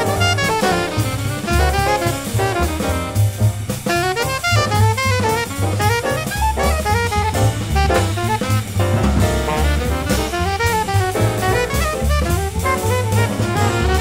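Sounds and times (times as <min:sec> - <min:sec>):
alto saxophone solo: 0:00.0 - 0:14.0
drum kit: 0:00.0 - 0:14.0
upright bass: 0:00.0 - 0:14.0.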